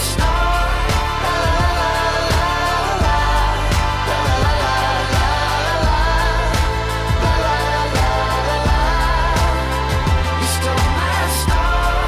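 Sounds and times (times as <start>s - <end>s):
pop song with steady beat: 0.0s - 12.0s.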